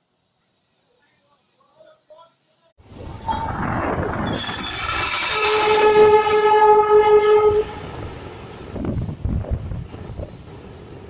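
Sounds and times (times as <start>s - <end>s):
train engine and wheels rumbling: 2.8s - 11.0s
locomotive horn: 5.0s - 7.9s.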